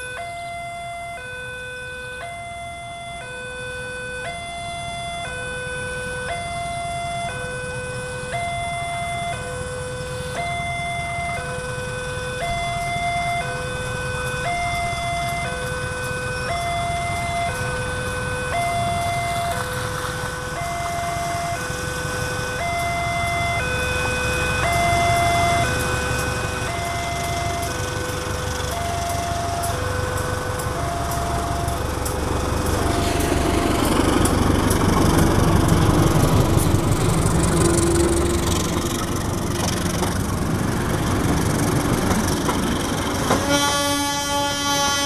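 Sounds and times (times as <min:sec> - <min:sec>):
level crossing two-tone alarm: 0:00.0 - 0:19.7, 0:20.4 - 0:32.1
locomotive engine rumbling: 0:00.0 - 0:45.0.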